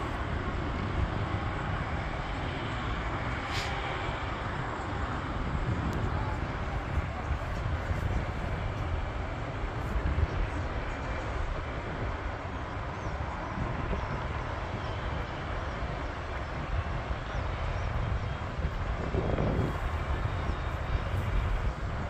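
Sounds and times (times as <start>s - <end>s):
distant jet engines rushing: 0.0s - 22.0s
wind rumbling on microphone: 0.0s - 22.0s.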